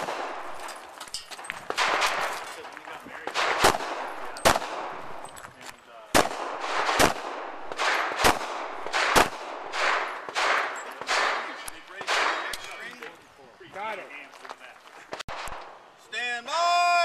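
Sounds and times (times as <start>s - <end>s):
pistol shots with echo: 0.0s - 5.3s, 6.1s - 13.0s.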